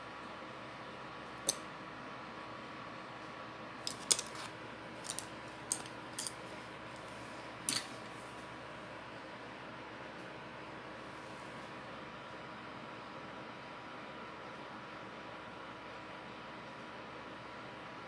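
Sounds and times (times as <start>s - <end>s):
faint hum: 0.0s - 18.0s
small tools clicking and tapping: 3.9s - 6.4s.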